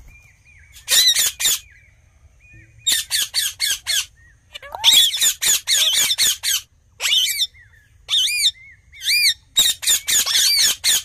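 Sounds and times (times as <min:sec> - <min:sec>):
parakeets squawking: 0:02.9 - 0:11.0.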